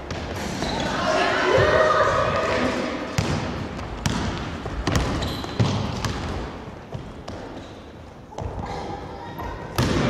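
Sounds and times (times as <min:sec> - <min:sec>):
basketball bouncing on wooden floor: 0:03.2 - 0:07.4.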